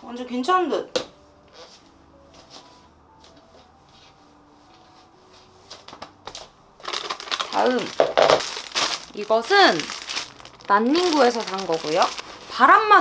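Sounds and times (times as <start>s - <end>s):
soft slow background music: 0.0s - 13.0s.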